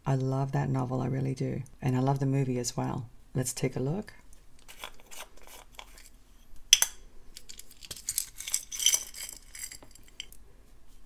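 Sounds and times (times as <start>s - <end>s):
glass beads clinking and rattling: 6.7s - 10.4s.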